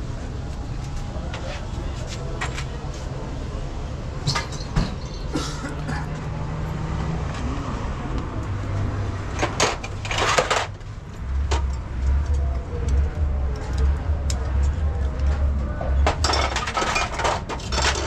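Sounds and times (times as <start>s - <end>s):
metal tools clinking in metal bowl: 4.3s - 5.6s, 16.0s - 18.0s.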